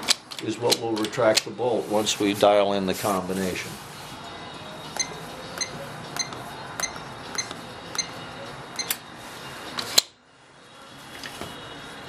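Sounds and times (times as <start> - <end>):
keypad beeps: 5.0 - 8.2, 8.8 - 9.0.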